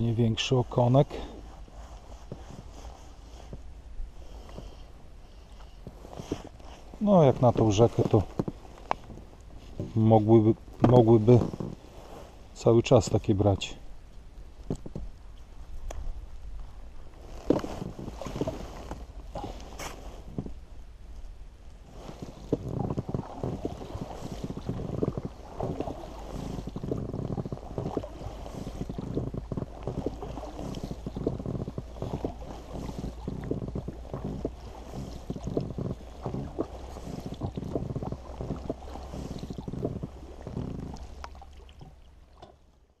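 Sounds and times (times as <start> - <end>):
wind rumble on microphone: 0.0 - 42.5
oars knocking: 5.8 - 12.1, 17.3 - 20.6, 21.9 - 42.6
water splashing: 14.6 - 20.6, 21.7 - 42.7.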